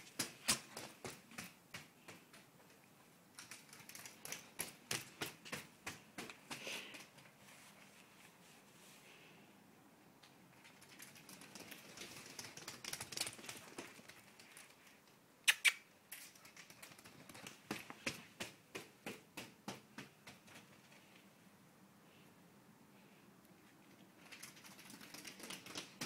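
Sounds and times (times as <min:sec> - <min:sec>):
sheep hooves on concrete: 0:00.0 - 0:08.0, 0:10.6 - 0:15.2, 0:16.2 - 0:21.3, 0:24.0 - 0:26.0.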